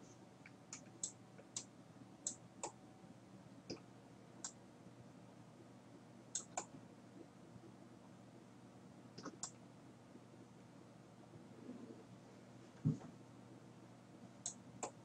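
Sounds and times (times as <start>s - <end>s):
faint steady hum: 0.0s - 15.0s
computer mouse buttons clicking: 6.4s - 6.7s, 9.2s - 9.6s.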